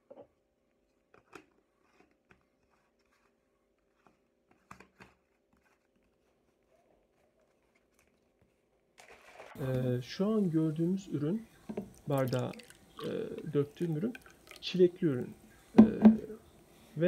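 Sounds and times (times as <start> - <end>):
faint hum: 9.6 - 17.0.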